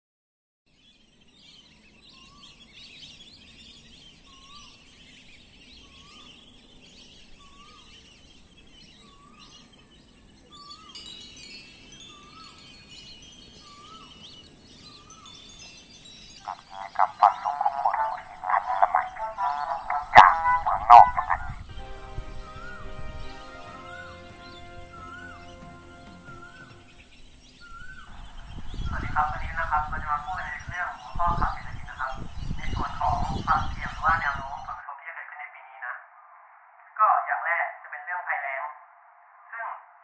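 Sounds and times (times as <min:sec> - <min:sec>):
faint high chirping: 0:00.7 - 0:34.8
ringing bell-like tones: 0:10.4 - 0:17.4
rising-and-falling call: 0:16.4 - 0:28.6.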